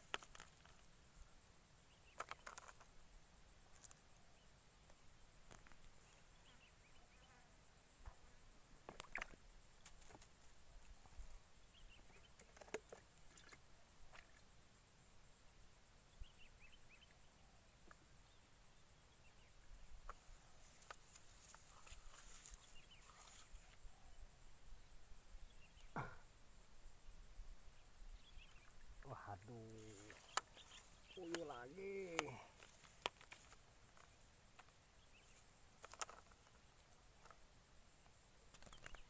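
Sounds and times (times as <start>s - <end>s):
soft clicks of fishing line: 29.4s - 34.8s.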